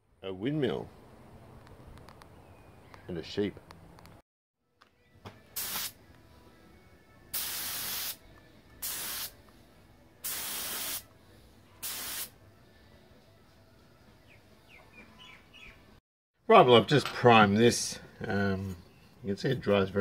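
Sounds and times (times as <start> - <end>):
spray gun hissing: 5.6 - 5.9, 7.4 - 8.2, 8.8 - 9.3, 10.2 - 11.0, 11.8 - 12.3.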